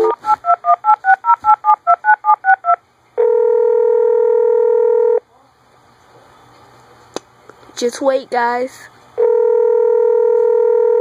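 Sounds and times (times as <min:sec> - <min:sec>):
phone ringing tone: 0:00.0 - 0:05.2, 0:09.2 - 0:11.0.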